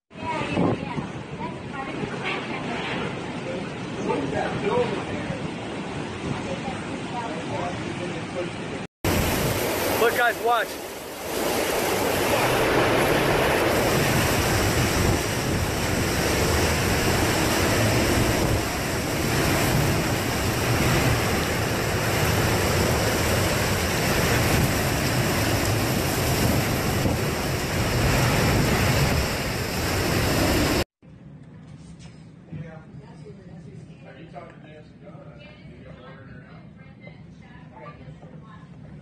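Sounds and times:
wind buffeting microphone: 0.1s - 7.9s, 9.1s - 30.8s
strong wind through trees: 0.1s - 30.8s
driving rain: 4.3s - 30.9s.

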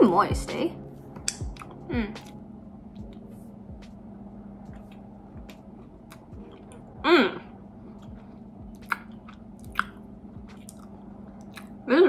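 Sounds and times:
low steady hum: 0.0s - 12.0s
person humming mm: 1.8s - 2.4s, 7.0s - 7.6s
wet mouth clicks chewing: 8.0s - 11.8s.

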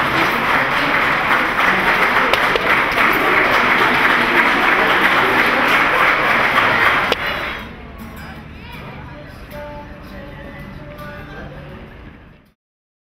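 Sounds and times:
crowd applauding: 0.0s - 7.7s.

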